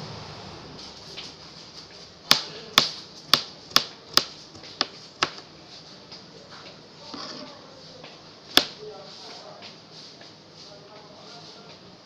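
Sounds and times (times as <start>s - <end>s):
knife chopping on cutting board: 2.3s - 5.4s, 8.5s - 8.8s.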